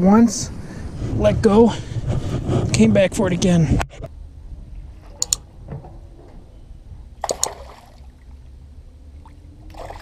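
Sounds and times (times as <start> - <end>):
sharp clicks: 5.2 - 5.4, 7.2 - 7.6
water splashing: 7.2 - 8.5, 9.2 - 10.0.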